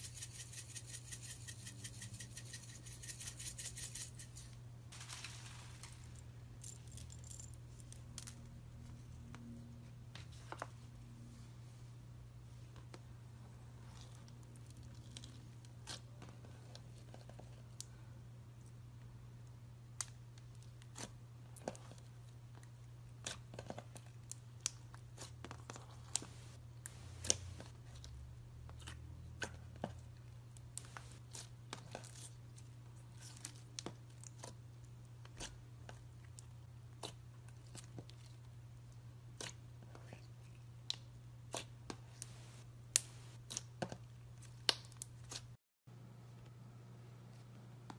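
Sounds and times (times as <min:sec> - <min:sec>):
low steady hum: 0:45.9 - 0:47.9.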